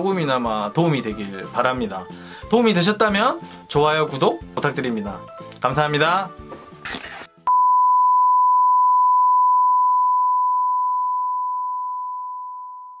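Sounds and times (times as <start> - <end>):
sine test tone: 7.5 - 13.0.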